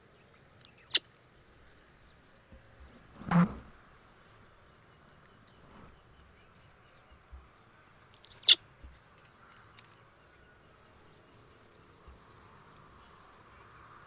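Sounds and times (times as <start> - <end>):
high-pitched animal call sliding down: 8.3 - 8.6.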